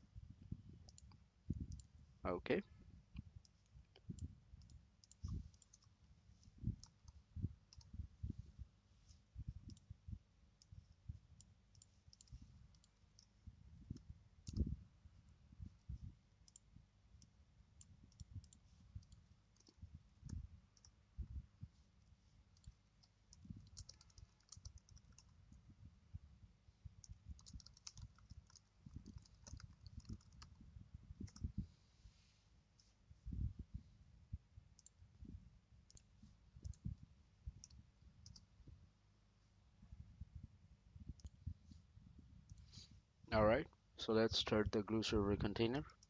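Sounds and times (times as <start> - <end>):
computer mouse clicks: 0.8 - 1.9, 3.2 - 8.0, 9.6 - 9.9, 11.4 - 14.7, 16.4 - 21.0, 22.5 - 25.4, 27.0 - 30.6, 31.2 - 31.5, 34.8 - 35.0, 35.9 - 36.9, 37.6 - 38.5, 41.2 - 41.4.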